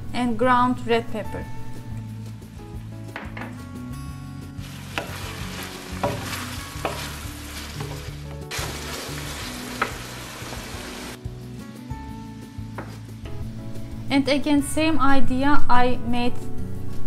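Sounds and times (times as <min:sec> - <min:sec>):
meat sizzling in a pan: 0:04.6 - 0:11.2
wooden spoon knocking on pan: 0:04.7 - 0:10.6.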